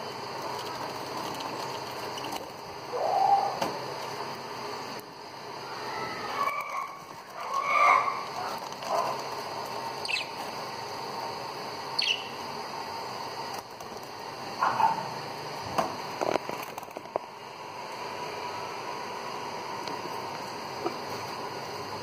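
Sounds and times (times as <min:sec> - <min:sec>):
steady background hiss: 0:00.0 - 0:22.0
budgerigars chirping: 0:10.0 - 0:10.4, 0:12.0 - 0:12.4
high sharp bird calls: 0:10.0 - 0:10.4, 0:12.0 - 0:12.4.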